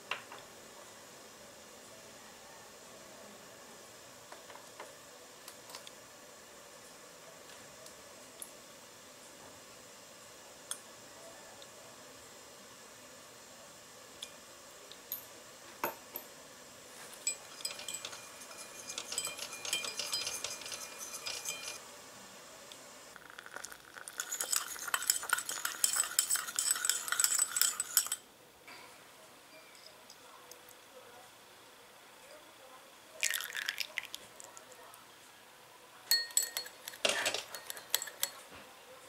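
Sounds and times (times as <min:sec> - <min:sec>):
whisk clinking and scraping in pan: 0:17.1 - 0:21.8, 0:23.2 - 0:28.2, 0:36.1 - 0:38.4.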